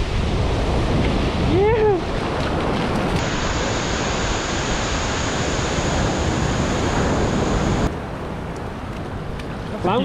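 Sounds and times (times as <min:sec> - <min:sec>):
ocean surf breaking on beach: 0:00.0 - 0:07.9
wind on microphone: 0:00.0 - 0:09.7.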